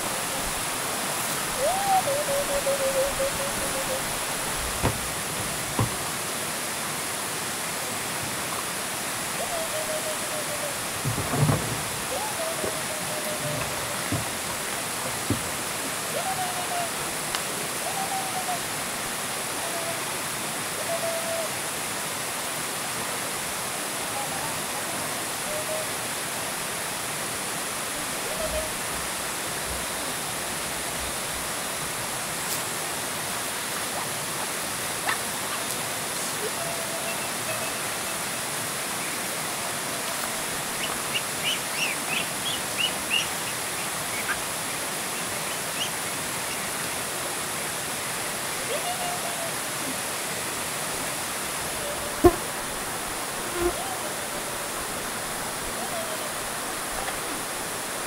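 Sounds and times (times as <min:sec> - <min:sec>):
running water rushing: 0:00.0 - 0:58.0
short calls: 0:01.4 - 0:06.0, 0:09.4 - 0:14.7.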